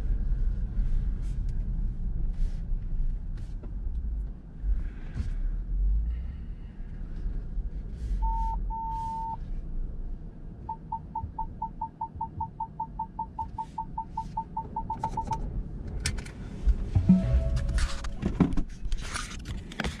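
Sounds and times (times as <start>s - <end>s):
low rumble: 0.0s - 13.4s, 14.0s - 19.9s
parking sensor beeps: 8.2s - 9.4s, 10.6s - 15.4s.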